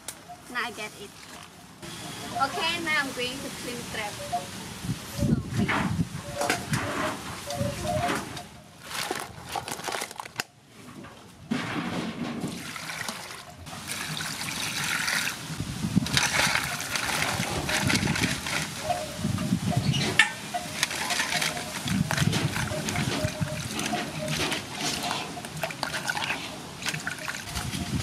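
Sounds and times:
water pouring into metal basin: 12.6s - 19.0s, 20.6s - 28.0s
crabs clattering in bowl: 16.0s - 28.0s.

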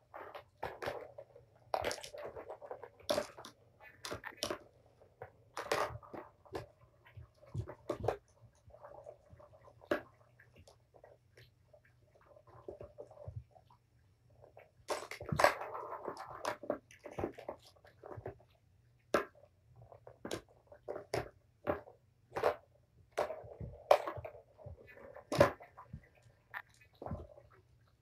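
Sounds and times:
balls rolling rattle: 0.0s - 13.6s, 14.4s - 18.5s, 19.1s - 27.8s
plastic balls clacking: 0.1s - 11.5s.

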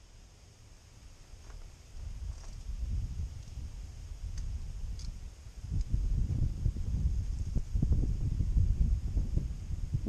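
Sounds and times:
wind buffeting microphone: 2.0s - 10.0s.

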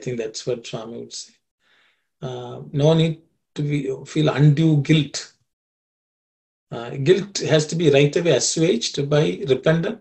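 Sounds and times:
man speaking: 0.0s - 1.4s, 2.2s - 5.4s, 6.7s - 10.0s.

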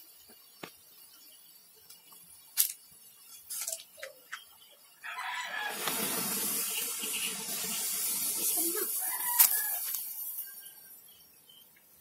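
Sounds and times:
sharp pops and crackles: 0.2s - 4.8s, 5.8s - 7.3s, 8.0s - 10.4s
loud hiss of escaping smoke: 5.4s - 11.3s.

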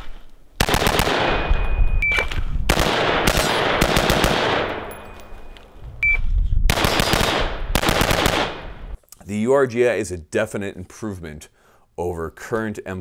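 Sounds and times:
rifle shots echoing: 0.6s - 5.4s, 6.7s - 9.0s.

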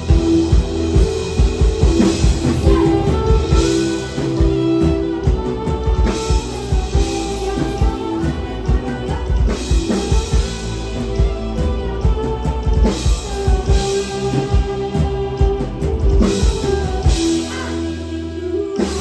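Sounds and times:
drum kit beat: 0.0s - 19.0s
electric guitar: 0.0s - 19.0s
live rock band playing: 0.0s - 19.0s.

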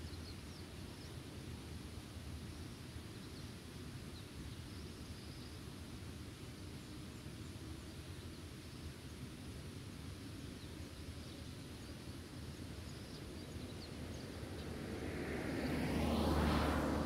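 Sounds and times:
wind rumbling on microphone: 12.2s - 17.0s
vehicle approaching: 13.9s - 17.0s.

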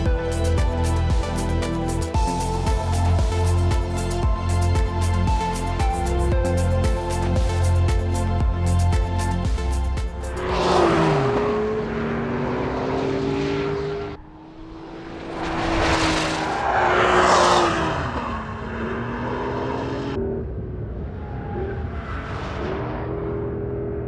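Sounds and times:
car engine revving: 10.2s - 24.0s.

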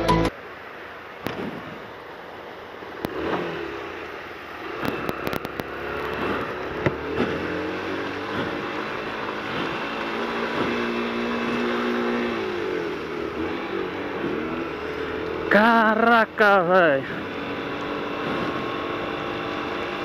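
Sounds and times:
wet road noise: 0.0s - 20.0s
motorcycle engine revving and misfiring: 3.0s - 20.0s
sharp clicks: 4.8s - 7.4s.

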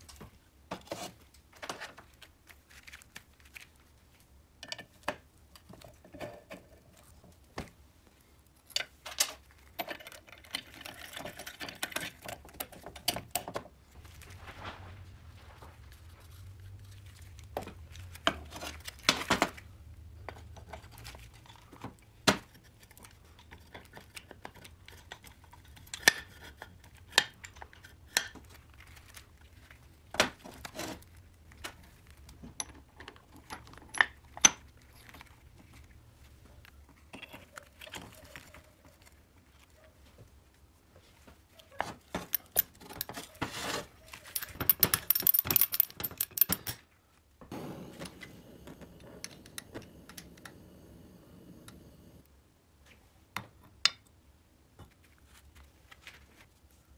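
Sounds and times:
handling noise: 8.9s - 24.8s, 47.4s - 52.2s.

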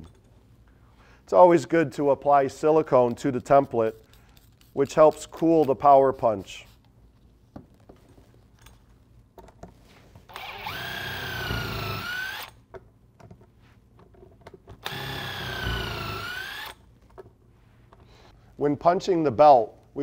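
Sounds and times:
impact driver motor whine: 10.3s - 12.5s, 14.8s - 16.8s.

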